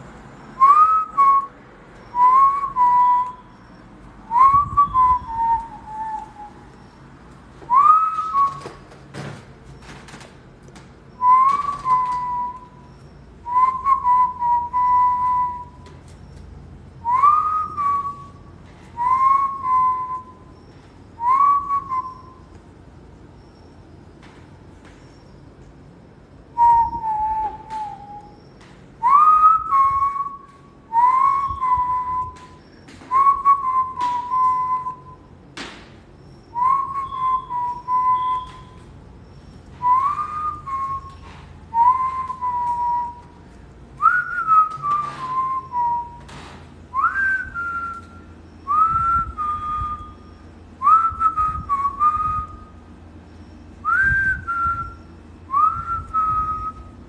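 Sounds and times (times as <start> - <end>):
whistled phrases: 0.6 - 6.9, 7.7 - 8.8, 11.2 - 15.9, 17.0 - 20.5, 21.2 - 22.4, 26.5 - 35.3, 36.5 - 38.9, 39.8 - 43.4, 44.0 - 46.3, 46.9 - 52.8, 53.5 - 57.0.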